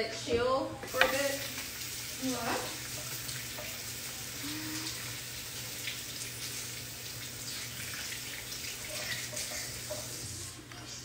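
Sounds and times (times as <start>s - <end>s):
kitchen tap running water: 0.8s - 10.6s.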